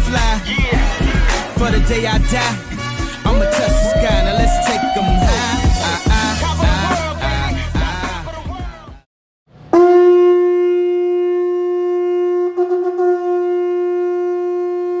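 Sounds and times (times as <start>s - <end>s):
long horn blast: 0.1s - 4.6s, 9.7s - 15.0s.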